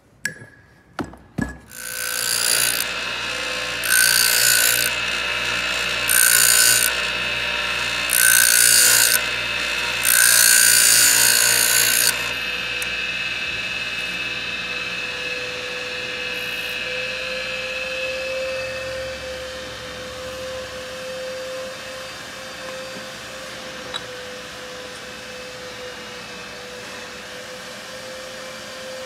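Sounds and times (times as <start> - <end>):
electric grinder motor running: 1.7 - 19.5.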